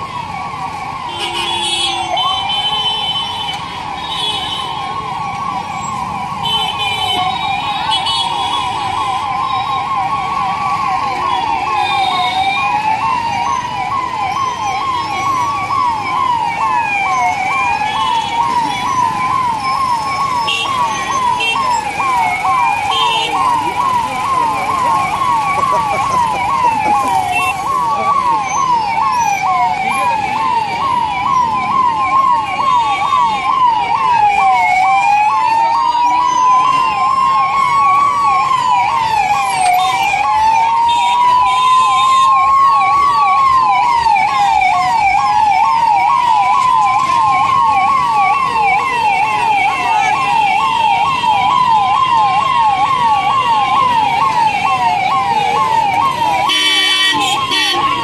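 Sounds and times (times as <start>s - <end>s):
siren fast yelp: 0.0s - 58.0s
siren slow wail: 0.0s - 58.0s.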